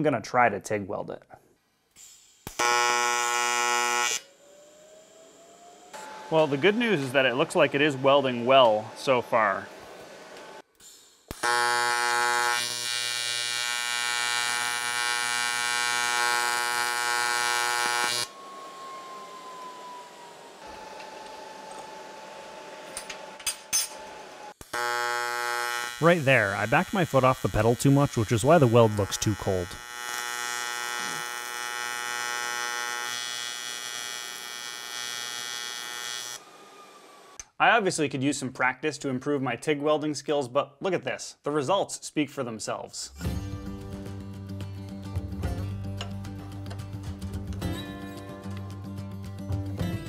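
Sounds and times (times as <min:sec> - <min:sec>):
welding arc electrical buzz: 0:01.9 - 0:06.8, 0:10.4 - 0:18.4, 0:21.7 - 0:36.5.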